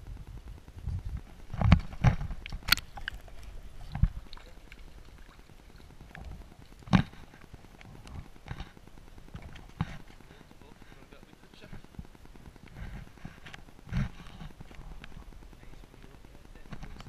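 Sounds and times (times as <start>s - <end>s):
water splashing: 1.4s - 10.7s.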